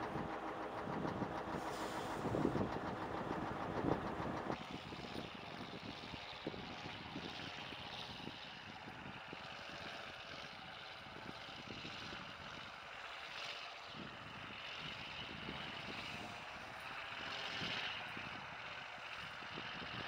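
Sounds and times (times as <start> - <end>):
wind buffeting microphone: 0.0 - 9.4
truck diesel engine droning: 0.0 - 20.0.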